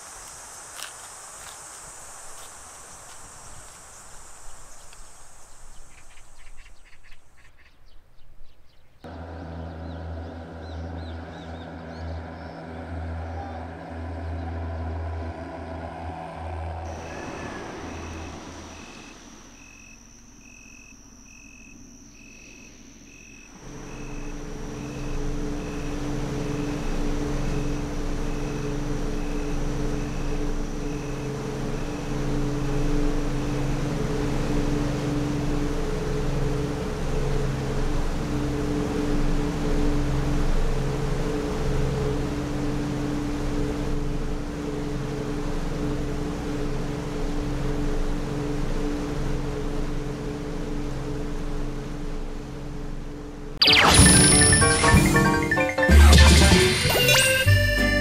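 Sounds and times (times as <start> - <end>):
insects buzzing: 0.0 - 58.0
ferry engine humming: 9.0 - 58.0
fogging truck engine and sprayer: 9.1 - 20.4, 23.6 - 48.9
steady beeping: 22.8 - 42.8, 53.6 - 58.0.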